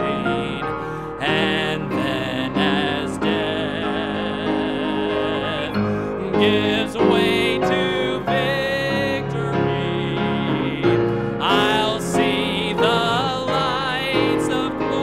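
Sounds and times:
gospel hymn singing with vibrato: 0.0 - 15.0.

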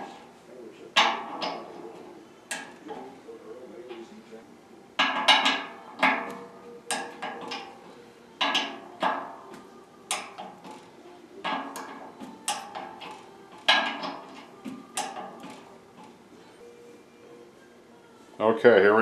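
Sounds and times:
torque wrench clicking: 10.1 - 10.8.

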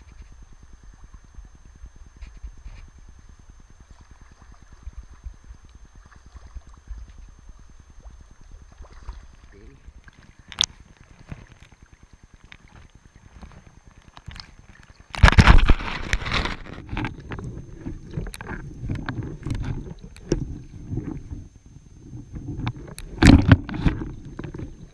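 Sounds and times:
muffled underwater rumbling: 0.0 - 24.9
river water sloshing and splashing: 6.0 - 7.2, 8.0 - 17.2.

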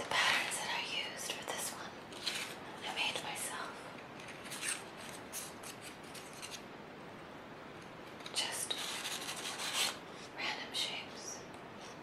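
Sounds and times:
paper rustling and crinkling: 2.1 - 2.6, 8.1 - 10.0.

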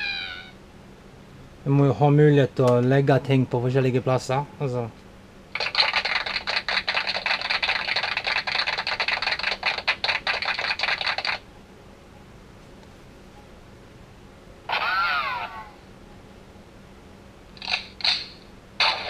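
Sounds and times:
crackly hissing toy sound effect: 17.6 - 19.0.

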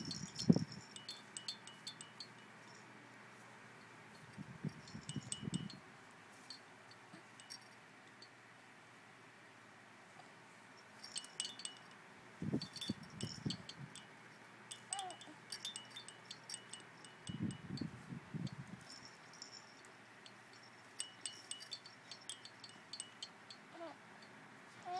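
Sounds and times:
small jingle bells jingling: 0.0 - 3.0, 4.1 - 5.8, 7.2 - 7.8, 10.8 - 24.3.

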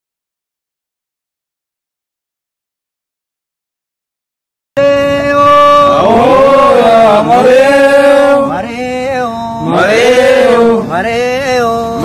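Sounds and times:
person chanting a song: 4.8 - 12.0.

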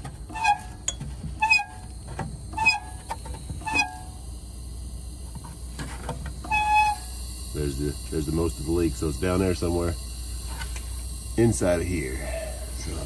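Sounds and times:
engine running hum: 0.0 - 13.0
air leak whistle: 0.3 - 0.8, 1.4 - 1.8, 2.5 - 4.2, 6.4 - 7.7.

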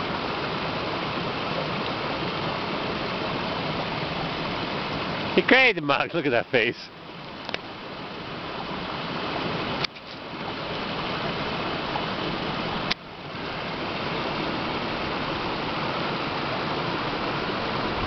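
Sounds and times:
stream rushing over rocks: 0.0 - 18.0.

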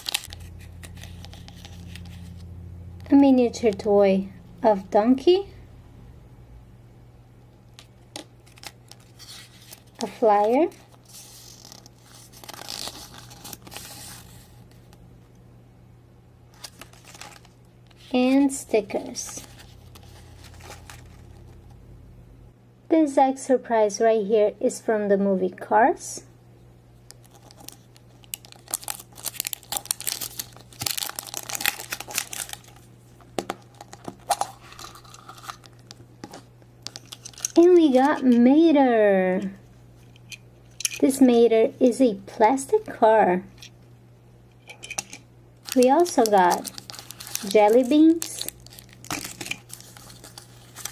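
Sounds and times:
paper rustling and crinkling: 0.0 - 2.5, 7.8 - 14.9, 16.5 - 18.2, 19.0 - 21.6, 27.2 - 37.6, 45.6 - 50.9.

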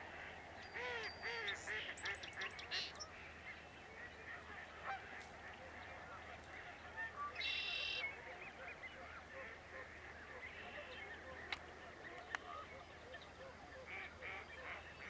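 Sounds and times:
geese honking: 4.0 - 8.4.

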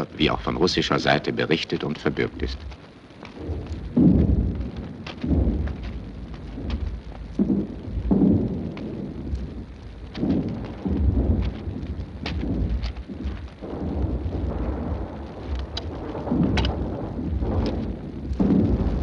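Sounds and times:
distant artillery booms: 0.0 - 19.0
faint clicks: 15.1 - 18.5.

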